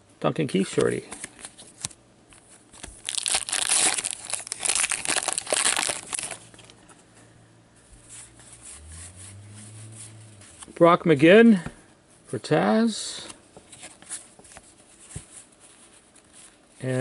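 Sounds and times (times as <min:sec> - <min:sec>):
plastic wrapper tearing and crumpling: 0:02.8 - 0:06.8.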